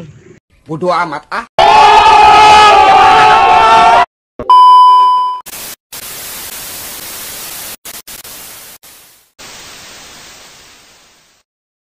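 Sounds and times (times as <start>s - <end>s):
loud steady beep tone: 4.5s - 5.4s.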